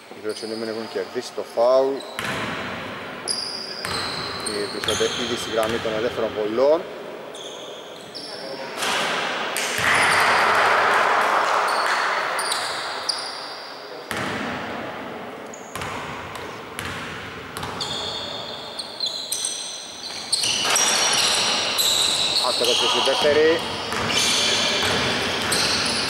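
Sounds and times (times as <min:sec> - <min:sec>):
sneakers squeaking on floor: 0:00.0 - 0:06.3, 0:07.3 - 0:08.7, 0:09.8 - 0:10.6, 0:11.5 - 0:14.5, 0:15.5 - 0:26.0
basketball bouncing on wooden court: 0:02.1 - 0:02.9, 0:03.8 - 0:06.0, 0:14.1 - 0:14.6, 0:15.7 - 0:18.4, 0:20.0 - 0:26.0
echoing voices: 0:20.6 - 0:26.0.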